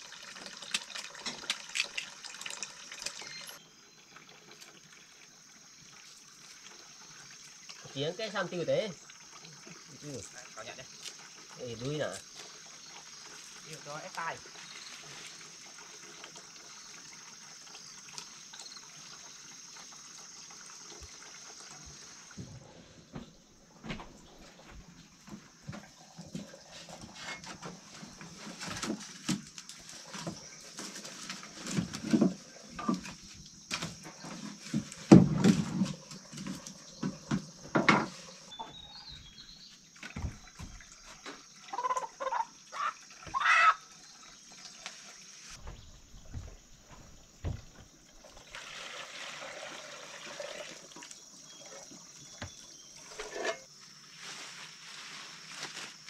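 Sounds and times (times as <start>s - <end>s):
chicken squawking: 41.7s - 43.8s
steady hiss: 52.8s - 56.0s.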